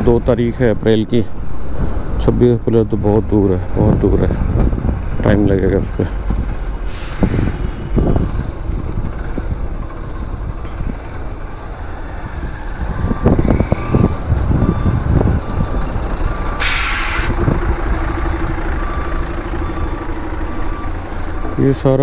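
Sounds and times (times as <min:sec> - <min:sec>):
road traffic rumble: 0:00.0 - 0:22.0
truck air brakes hiss: 0:06.8 - 0:07.8, 0:16.6 - 0:17.5
faint beeping: 0:17.5 - 0:22.0.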